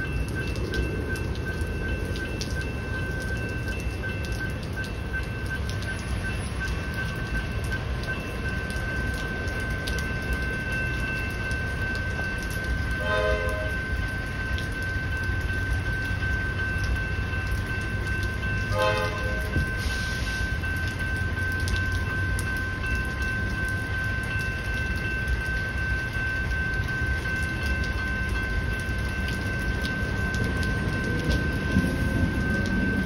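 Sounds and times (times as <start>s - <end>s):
level crossing bell ringing: 0.0s - 33.0s
train horn blasts: 13.0s - 13.8s, 18.7s - 19.7s.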